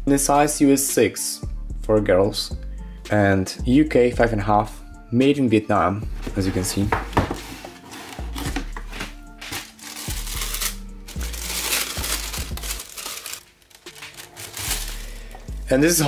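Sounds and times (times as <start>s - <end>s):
background music with bass line: 0.0s - 5.3s, 6.0s - 13.0s, 14.0s - 16.0s
cardboard shoebox opening: 6.2s - 15.5s
tissue paper crinkling: 7.3s - 15.6s.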